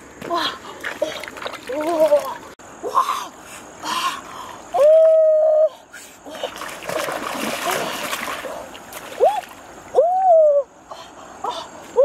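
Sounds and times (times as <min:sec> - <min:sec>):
water splashing while wading: 0:00.3 - 0:02.6, 0:06.3 - 0:09.9.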